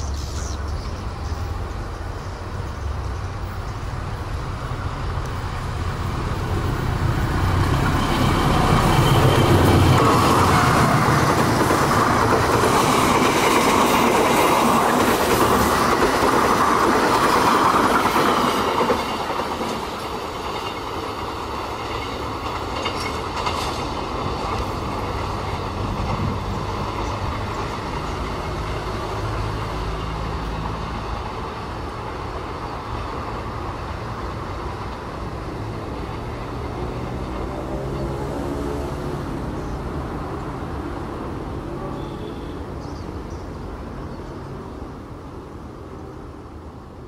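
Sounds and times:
train rumble: 0.0s - 47.0s
train wheels clattering over rails: 5.5s - 38.7s.

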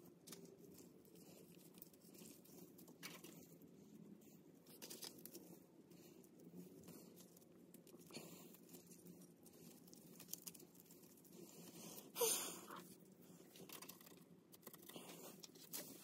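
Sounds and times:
faint clicks and rustles of metal shims: 0.0s - 16.0s.

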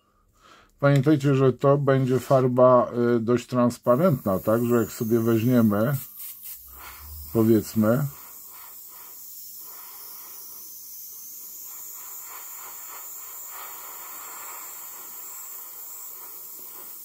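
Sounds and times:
airbrush hiss of air: 3.8s - 17.0s.

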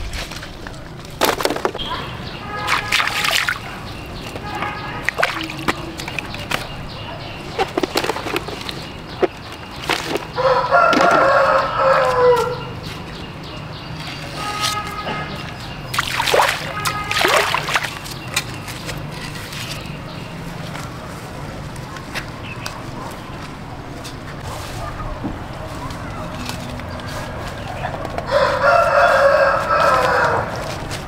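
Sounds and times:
faint rooster calls: 10.4s - 12.8s, 28.3s - 30.7s
rooster crowing: 10.4s - 12.8s, 28.3s - 30.6s.

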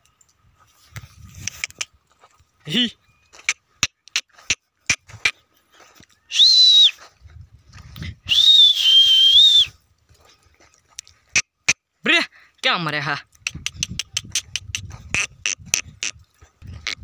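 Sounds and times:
high whistles: 6.3s - 7.0s, 8.3s - 9.8s.

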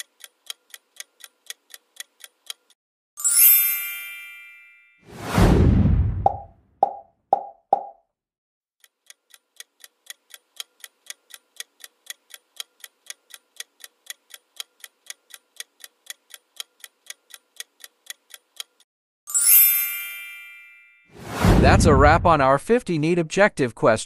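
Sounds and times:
clock-like timer ticking: 0.0s - 2.8s, 8.8s - 18.9s
bright ringing chime: 3.2s - 5.0s, 19.3s - 21.2s.

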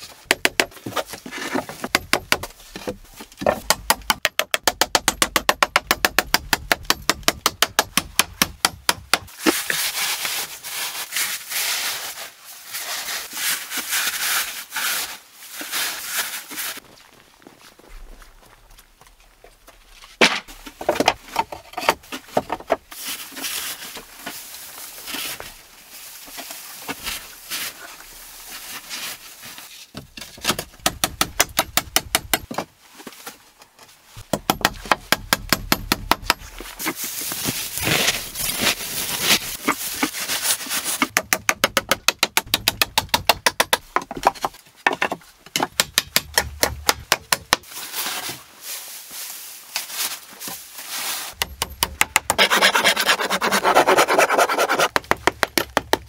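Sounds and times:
hammer striking nails into wood: 3.6s - 9.3s.

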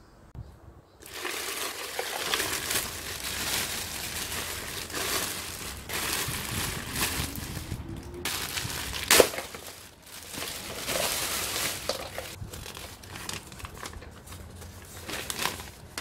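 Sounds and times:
plastic bag crinkling: 1.0s - 16.0s.

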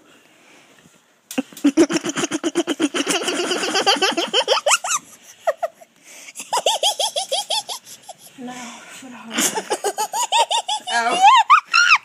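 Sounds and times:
person laughing hard: 1.4s - 8.3s, 9.4s - 12.0s.

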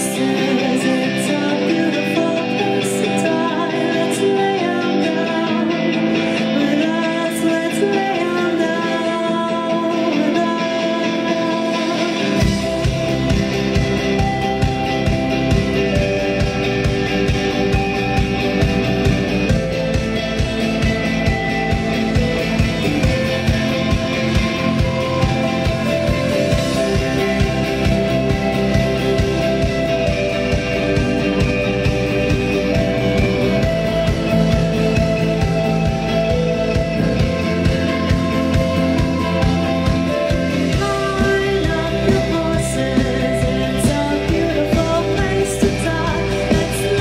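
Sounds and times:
person singing: 0.0s - 15.3s, 21.6s - 47.0s
electric guitar: 0.0s - 47.0s
live rock band playing: 0.0s - 47.0s
steady drum beat: 12.4s - 47.0s.

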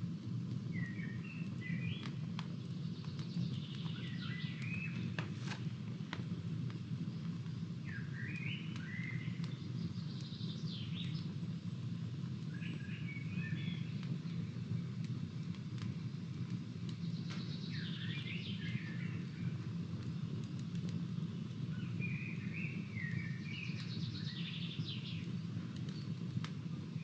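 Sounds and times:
campfire crackling and popping: 0.0s - 27.0s
songbird singing: 0.7s - 5.2s, 7.1s - 11.4s, 12.4s - 15.0s, 16.9s - 19.7s, 21.2s - 26.2s.

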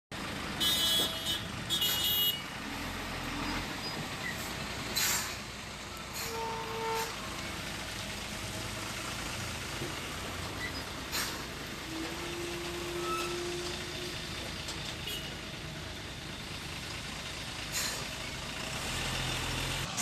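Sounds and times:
road traffic noise: 0.1s - 20.0s
short horn toot: 6.1s - 7.2s.

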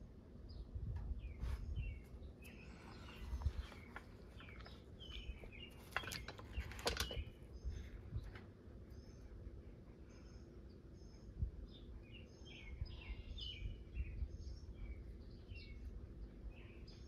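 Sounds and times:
faint bird chirps: 0.4s - 17.0s
soft handling clicks and rustles: 2.5s - 8.6s.

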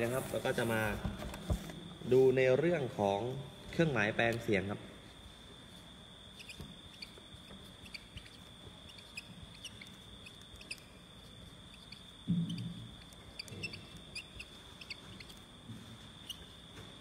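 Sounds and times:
marker squeaking on whiteboard: 6.3s - 17.0s.

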